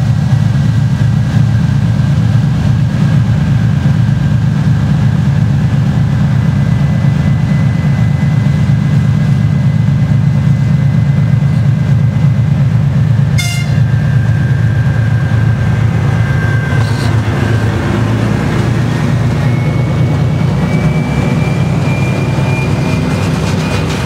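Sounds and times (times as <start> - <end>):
diesel locomotive engine drone: 0.0 - 24.0
locomotive horn toot: 13.3 - 14.1, 15.2 - 17.6
thin wheel squeal: 14.4 - 17.6, 18.9 - 24.0.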